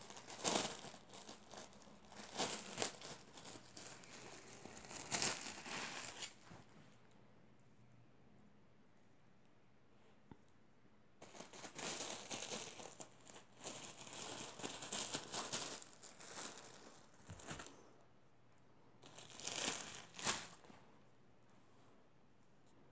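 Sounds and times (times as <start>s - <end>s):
plastic bag crinkling: 0.0s - 6.4s, 11.2s - 17.7s, 19.0s - 20.7s.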